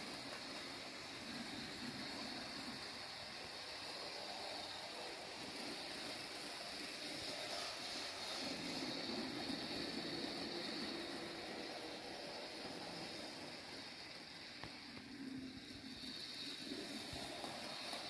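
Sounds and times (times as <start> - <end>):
model train motor whirring: 0.0 - 18.0
model train wheels rolling: 0.0 - 18.0.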